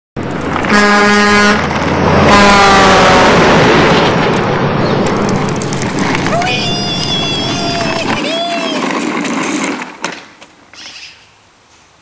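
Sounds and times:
road noise: 0.2 - 12.0
vehicle horn honking: 0.7 - 1.6, 2.3 - 3.4.

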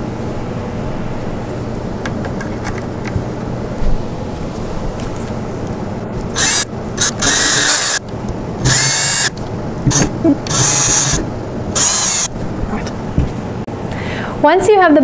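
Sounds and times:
cordless drill driving screws: 6.3 - 12.3.

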